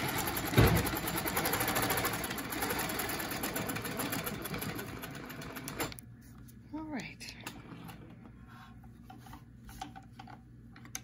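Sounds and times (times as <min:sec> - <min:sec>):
sewing machine stitching: 0:00.0 - 0:06.0.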